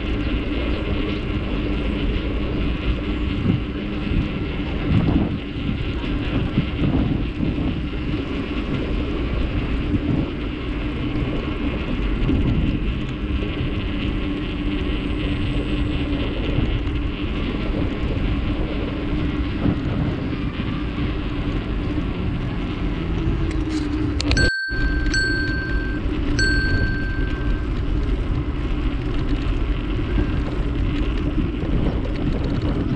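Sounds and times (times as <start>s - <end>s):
road rumble: 0.0s - 32.9s
wind noise on microphone: 0.0s - 32.9s
high ringing tone: 24.2s - 27.9s.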